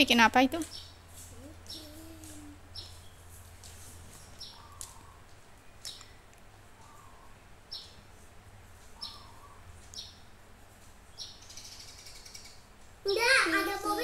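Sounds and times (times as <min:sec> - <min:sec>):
faint bird chirps: 0:00.7 - 0:03.3, 0:09.0 - 0:10.2.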